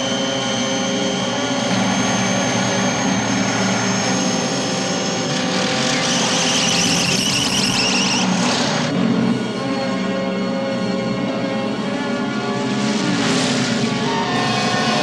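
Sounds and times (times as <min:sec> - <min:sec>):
high pulsing squeal: 0:00.0 - 0:08.9, 0:12.1 - 0:15.0.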